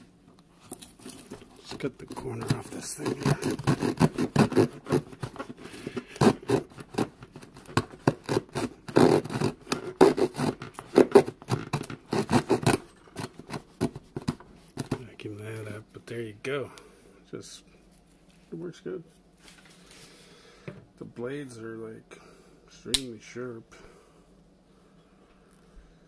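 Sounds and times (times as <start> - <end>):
small saw cutting through wood: 2.2 - 13.9.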